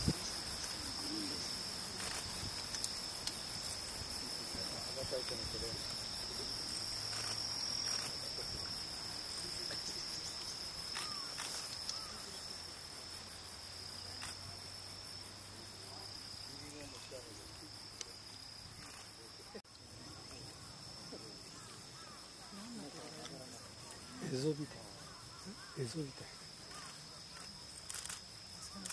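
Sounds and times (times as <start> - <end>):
insects shrilling: 0.0 - 15.2.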